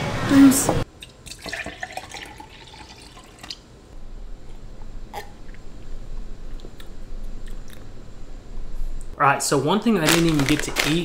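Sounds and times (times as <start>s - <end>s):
liquid pouring into glass: 1.0s - 3.6s.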